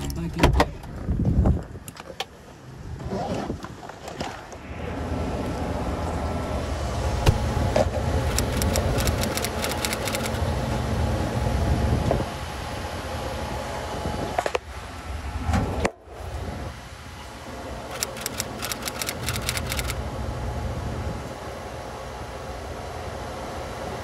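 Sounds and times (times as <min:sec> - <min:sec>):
freezer compressor and fan humming: 0:04.7 - 0:24.0
low thump: 0:07.2 - 0:07.5.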